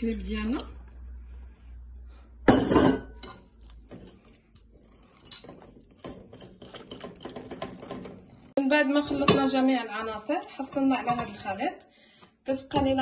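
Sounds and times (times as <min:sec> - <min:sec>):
whisk scraping glass bowl: 0:02.7 - 0:08.6.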